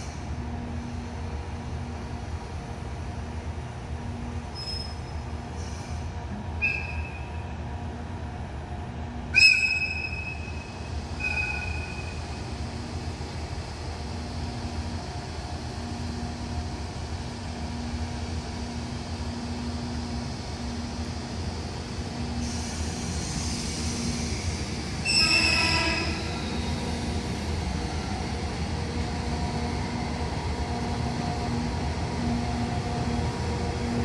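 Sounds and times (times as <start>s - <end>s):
locomotive horn blasts: 25.1s - 26.4s.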